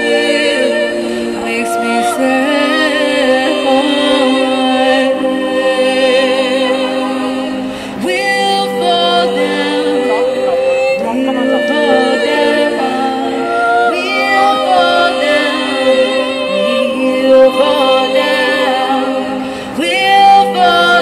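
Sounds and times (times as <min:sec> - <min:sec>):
woman singing through amplifier: 0:08.0 - 0:21.0.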